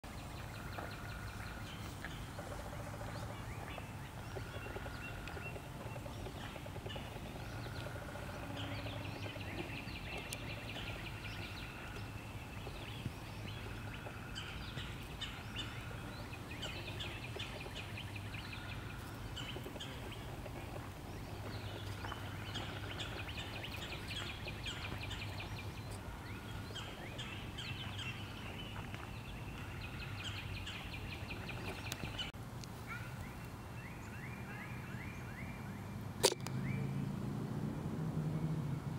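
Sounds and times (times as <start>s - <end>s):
birds chirping and trilling: 0.0s - 37.2s.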